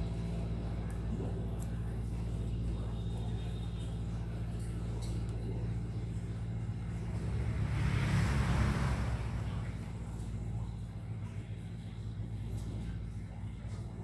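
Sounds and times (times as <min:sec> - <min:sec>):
steady low hum: 0:00.0 - 0:14.0
rushing noise: 0:07.2 - 0:09.8.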